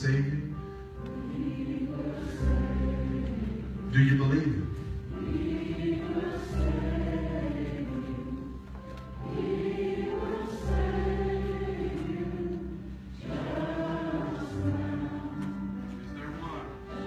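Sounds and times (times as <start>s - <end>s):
congregation singing a hymn: 0.0s - 17.0s.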